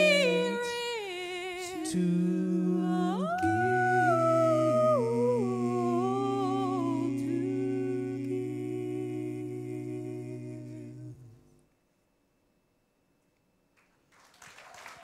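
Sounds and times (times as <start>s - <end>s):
vocal trio holding wordless chord: 0.0s - 11.6s.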